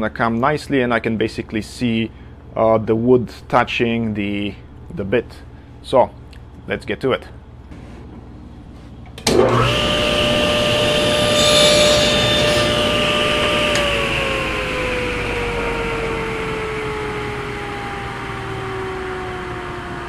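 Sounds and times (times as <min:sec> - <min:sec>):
saw blade whine spinning down: 0:09.3 - 0:20.0
table saw cutting plywood: 0:09.3 - 0:20.0.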